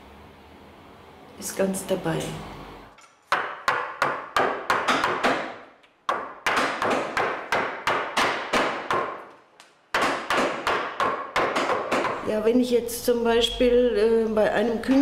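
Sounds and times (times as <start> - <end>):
wooden mallet striking chisel: 3.3 - 12.2.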